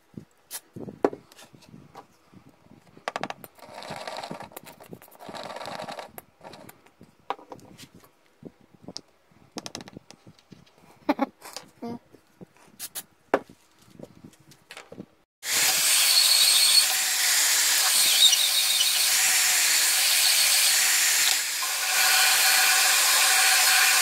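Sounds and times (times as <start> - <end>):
glue bottle sputtering: 3.4 - 6.8.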